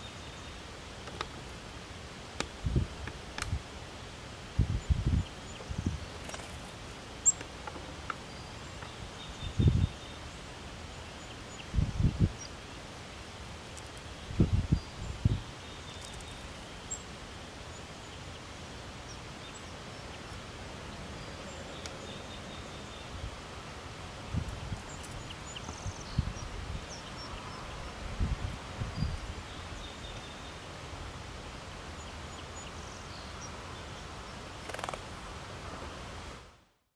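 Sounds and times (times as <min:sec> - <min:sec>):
wind buffeting microphone: 0:02.6 - 0:03.6, 0:04.6 - 0:06.2, 0:09.4 - 0:10.0, 0:11.7 - 0:12.4, 0:14.3 - 0:15.5, 0:27.7 - 0:29.4
fluttering rustle: 0:05.7 - 0:07.0, 0:34.5 - 0:35.2.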